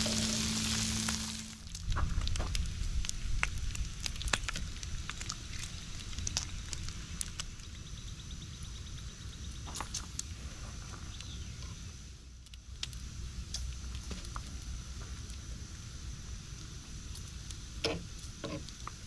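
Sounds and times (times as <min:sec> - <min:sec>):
steady low rumble: 0:00.0 - 0:09.4
bacon crackling on a griddle: 0:00.0 - 0:19.0
sharp pops and clicks: 0:01.0 - 0:07.8.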